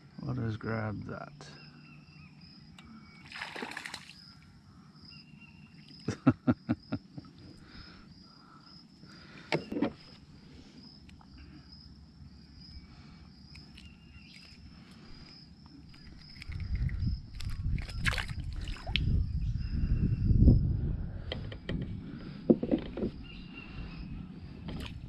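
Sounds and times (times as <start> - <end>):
insects chirping: 0.0 - 25.0
water splash: 3.3 - 4.2.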